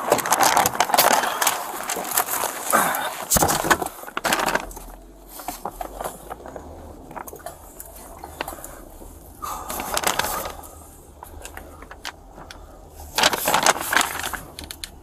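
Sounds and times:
low steady hum: 0.0s - 15.0s
paper bag rustling and crinkling: 0.0s - 15.0s.

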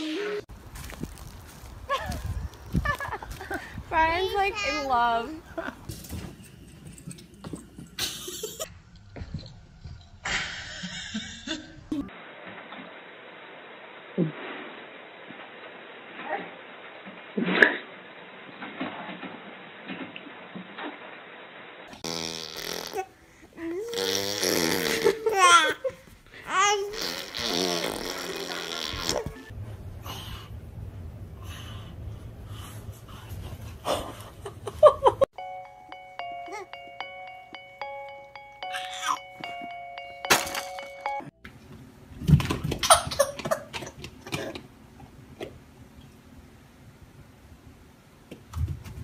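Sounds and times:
person laughing breathily: 1.9s - 3.9s
baby cooing and babbling: 26.5s - 27.8s.

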